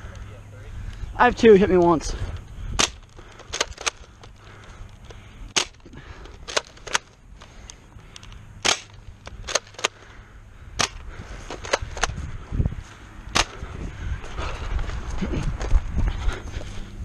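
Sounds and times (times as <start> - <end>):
sharp clicks: 1.7 - 10.1.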